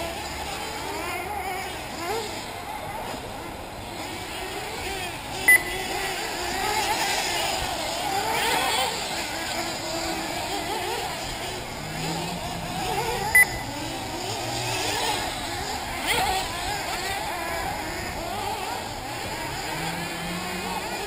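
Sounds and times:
model buggy engines buzzing: 0.0 - 21.0
short sharp beep: 5.5 - 5.8, 13.3 - 13.7.

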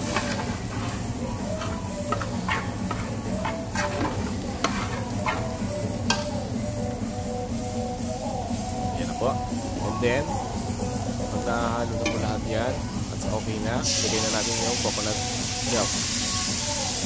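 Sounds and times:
food sizzling: 0.0 - 17.0
metal spatula clacking on pan: 6.1 - 6.4.

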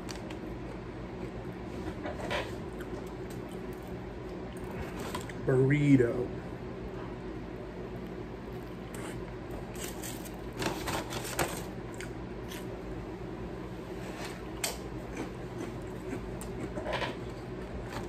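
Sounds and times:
steady low hum: 0.0 - 18.0
chewing clicks and crackles: 2.7 - 5.4, 14.6 - 17.5.

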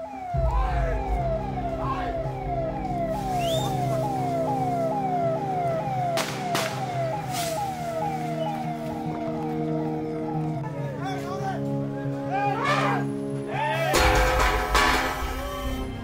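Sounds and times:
siren falling wail: 0.0 - 11.0
sharp bangs: 6.1 - 7.7, 14.0 - 15.8.

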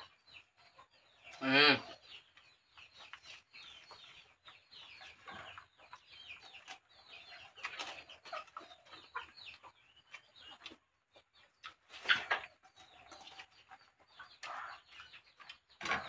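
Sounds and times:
faint bird chirping: 0.0 - 16.0.

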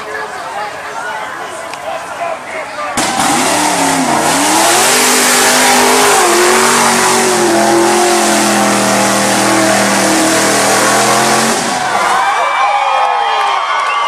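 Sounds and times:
truck engine at full throttle: 3.0 - 12.0.

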